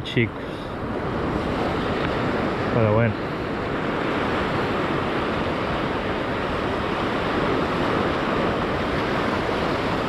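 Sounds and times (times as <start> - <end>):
sea surf washing on shore: 0.0 - 10.0
wind buffeting microphone: 0.0 - 10.0.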